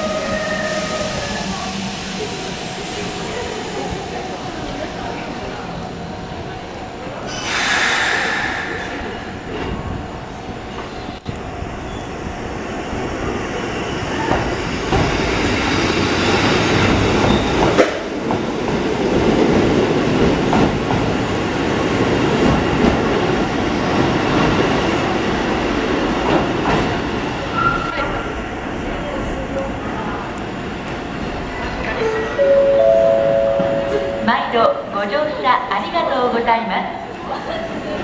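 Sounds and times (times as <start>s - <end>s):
electric train rumbling: 0.0s - 38.0s
train air hiss: 7.3s - 9.6s.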